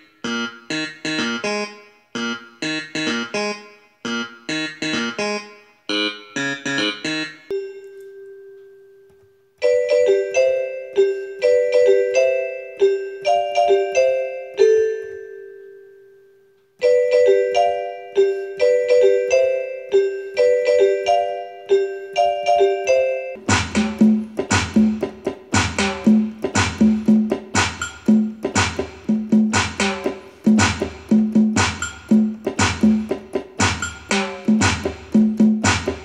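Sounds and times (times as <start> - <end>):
keyboard melody: 0.0 - 36.0
held keyboard note ringing: 6.0 - 24.4.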